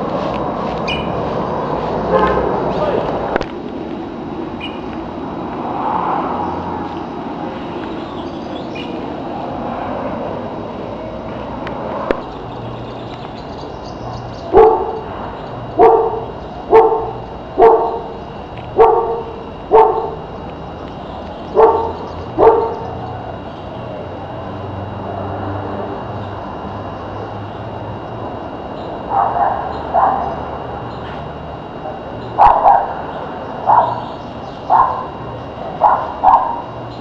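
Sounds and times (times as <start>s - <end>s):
dog barking: 2.1s - 2.4s, 14.5s - 15.1s, 15.8s - 18.2s, 18.8s - 20.2s, 21.6s - 22.9s, 29.1s - 30.4s, 32.4s - 33.0s, 33.7s - 34.0s, 34.7s - 35.2s, 35.8s - 36.7s.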